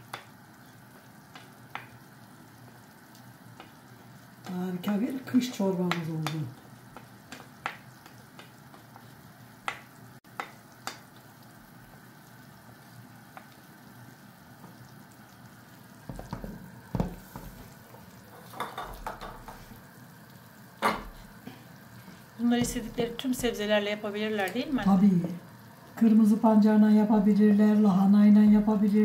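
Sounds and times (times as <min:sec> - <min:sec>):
soup cooking with faint hiss: 0:00.0 - 0:29.0
spoon knocking against pot: 0:18.4 - 0:19.6.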